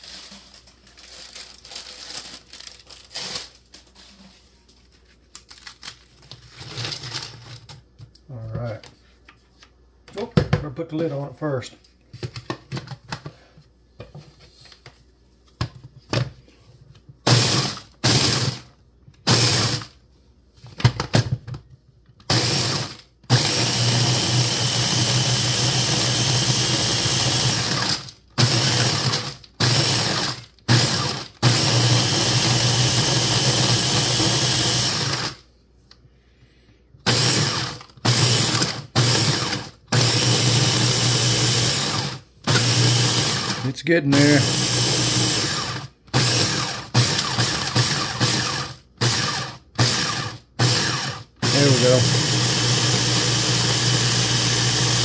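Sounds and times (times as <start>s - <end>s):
food chopper motor grinding: 17.3s - 18.7s, 19.3s - 19.9s, 22.2s - 35.4s, 37.0s - 55.0s.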